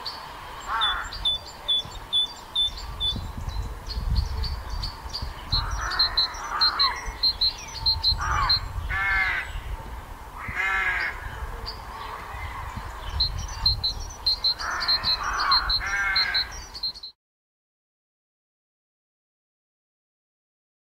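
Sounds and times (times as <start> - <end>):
harsh bird calls: 0.0 - 9.8, 10.4 - 17.2
high ticking bird calls: 0.0 - 9.8, 10.4 - 17.2.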